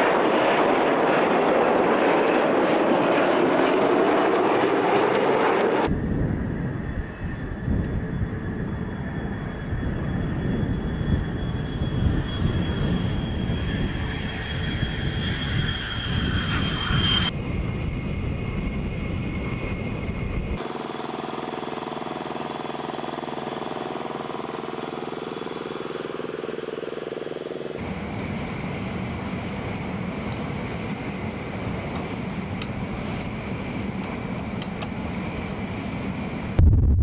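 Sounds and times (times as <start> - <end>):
jet engine noise: 0.0 - 37.0
high whine: 5.1 - 34.2, 35.1 - 37.0
steady rushing noise: 35.4 - 37.0.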